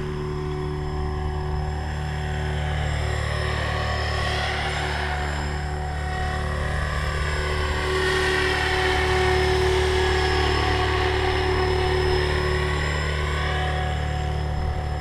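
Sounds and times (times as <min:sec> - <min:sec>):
rc helicopter rotor whine: 0:00.0 - 0:15.0.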